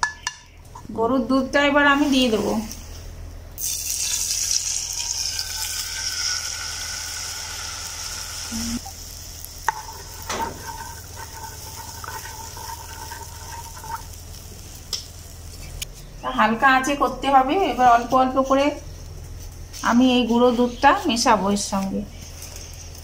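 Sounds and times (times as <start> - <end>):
milk sizzling in hot ghee: 3.6 - 23.0
wooden spatula scraping pan: 9.7 - 14.0.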